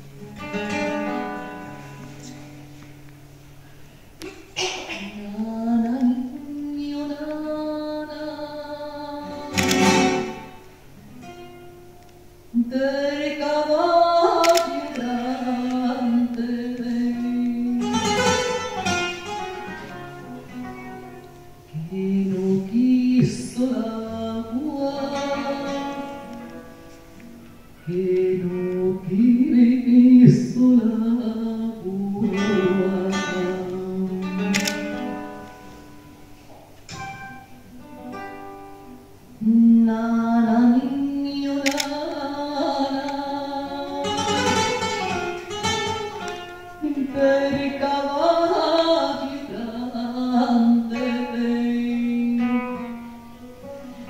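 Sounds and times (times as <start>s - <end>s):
nylon-string guitar: 0.0s - 54.0s
woman singing a lullaby: 4.9s - 10.5s, 12.5s - 18.4s, 21.7s - 26.6s, 27.8s - 35.1s, 39.4s - 44.8s, 46.7s - 53.1s.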